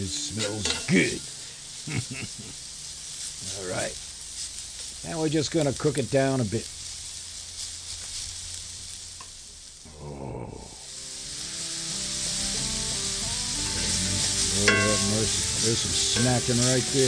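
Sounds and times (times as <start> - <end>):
steak sizzling in a pan: 0.0 - 17.0
background music: 11.3 - 17.0.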